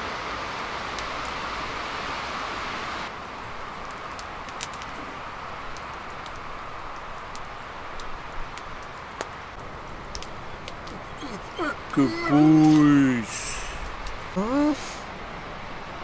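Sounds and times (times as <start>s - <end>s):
soft steady hiss: 0.0s - 16.0s.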